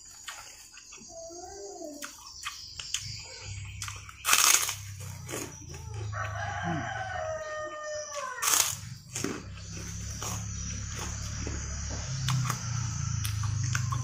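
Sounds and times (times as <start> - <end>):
crunch of cracker being bitten: 2.0 - 5.8, 8.1 - 11.2
rooster crowing: 5.6 - 8.9.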